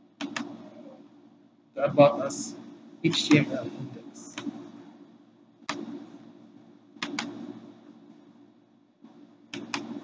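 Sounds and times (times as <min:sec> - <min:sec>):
faint steady hum: 0:00.0 - 0:10.0
computer mouse clicking: 0:00.2 - 0:00.6, 0:04.3 - 0:04.7, 0:05.6 - 0:06.0, 0:07.0 - 0:07.6, 0:09.1 - 0:10.0.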